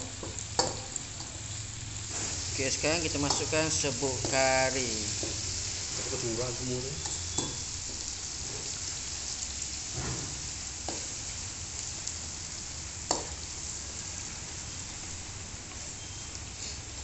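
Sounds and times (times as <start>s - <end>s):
food sizzling in hot oil: 0.0s - 17.0s.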